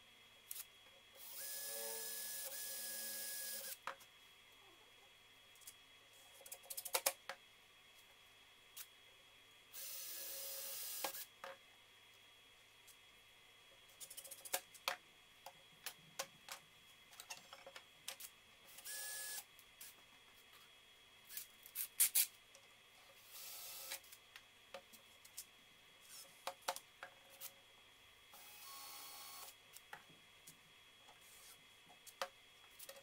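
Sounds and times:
cordless drill whirring: 0:01.2 - 0:03.8.

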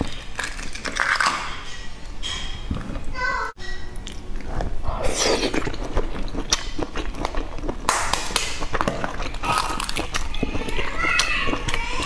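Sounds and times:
chewing egg: 0:03.9 - 0:12.0
eggshell cracking and peeling: 0:05.3 - 0:12.0.

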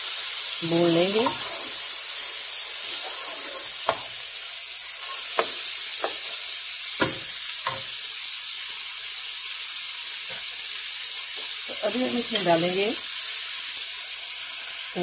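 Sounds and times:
meat and onions sizzling in oil: 0:00.0 - 0:15.0
spoon scraping against pan: 0:00.8 - 0:08.0.

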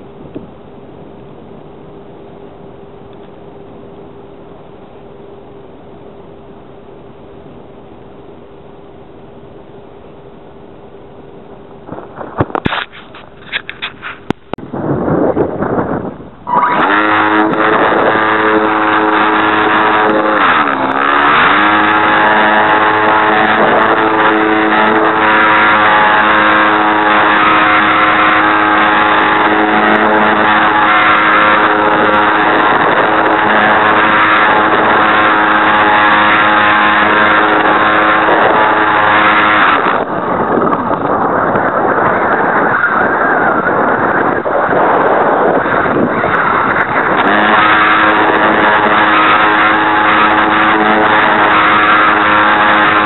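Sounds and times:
rushing wind noise: 0:11.7 - 0:53.0
electric motor whining: 0:16.5 - 0:42.6, 0:44.0 - 0:53.0.

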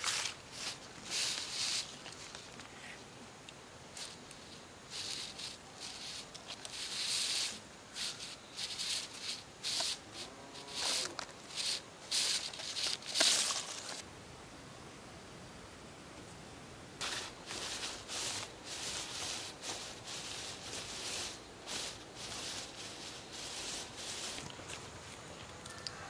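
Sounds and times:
footsteps in dry grass and leaves: 0:00.0 - 0:02.8, 0:03.9 - 0:14.0, 0:17.0 - 0:25.7.

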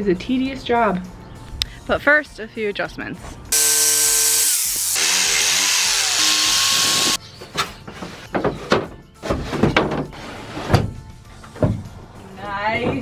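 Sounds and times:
jigsaw cutting plywood: 0:03.6 - 0:07.2.

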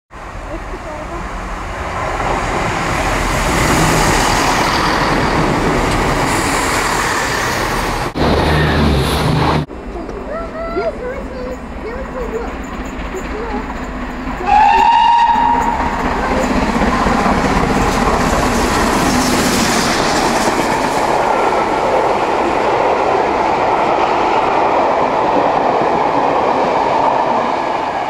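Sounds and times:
train wheel and rail clatter: 0:00.2 - 0:28.0
steam locomotive whistle: 0:14.4 - 0:15.9.

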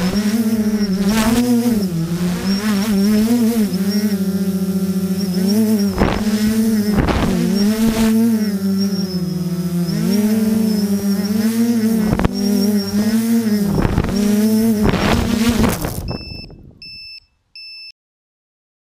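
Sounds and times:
drone motors buzzing: 0:00.0 - 0:16.9
brief thumps: 0:05.4 - 0:08.1, 0:13.7 - 0:17.0
short high beeps: 0:16.1 - 0:17.9.

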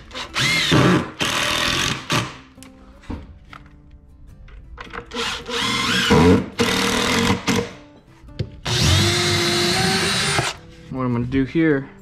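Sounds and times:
power tool working wood: 0:05.2 - 0:07.7, 0:08.6 - 0:10.6.

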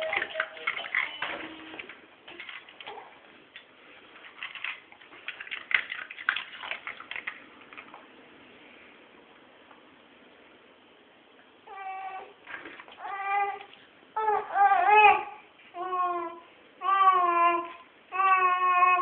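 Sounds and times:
plastic toys clicking and rattling: 0:00.0 - 0:01.5, 0:02.3 - 0:03.0, 0:04.2 - 0:08.0.

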